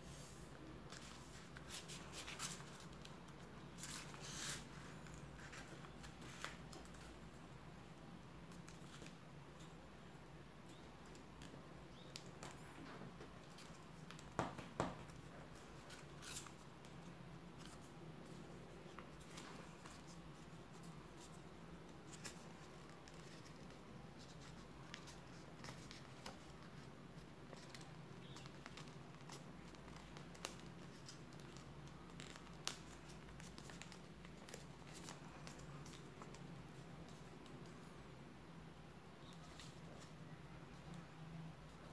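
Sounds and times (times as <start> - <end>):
paper crinkling and rustling: 15.5 - 37.8.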